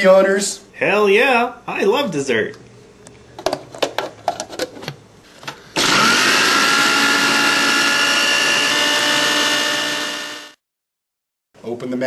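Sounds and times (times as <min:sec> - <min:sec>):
small electric motor whirring: 0:05.8 - 0:10.6.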